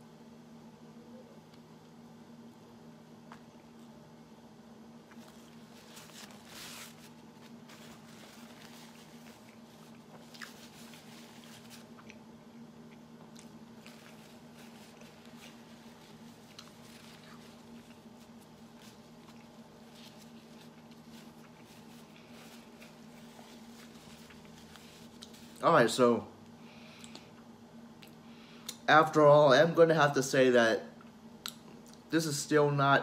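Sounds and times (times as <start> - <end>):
steady low hum: 0.0 - 33.0
person chewing: 5.0 - 25.6
paper wrapper rustling: 5.1 - 11.9, 13.8 - 25.6.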